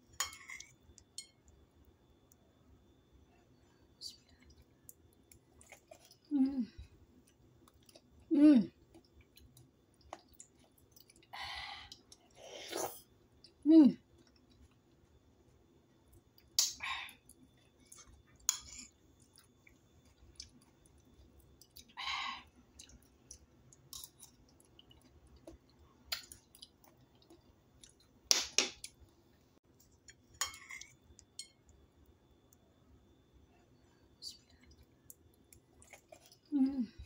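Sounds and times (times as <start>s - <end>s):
chewing: 4.3s - 6.3s, 7.2s - 11.3s, 17.2s - 22.0s, 22.7s - 28.1s, 34.5s - 36.5s
metal spoon scooping from plate: 30.0s - 31.6s.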